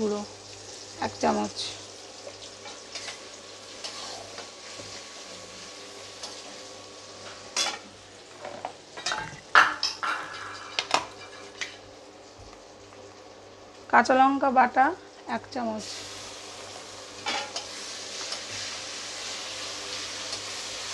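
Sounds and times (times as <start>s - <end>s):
low sizzle of frying sauce: 0.0s - 20.9s
metal spatula scraping a pan: 3.8s - 4.8s.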